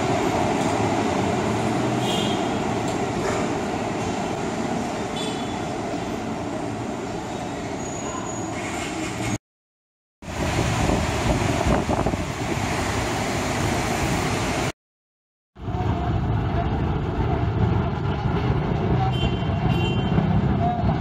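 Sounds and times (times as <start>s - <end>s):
road traffic: 0.0s - 9.4s, 10.2s - 14.8s, 15.6s - 21.0s
station concourse noise: 0.0s - 9.4s.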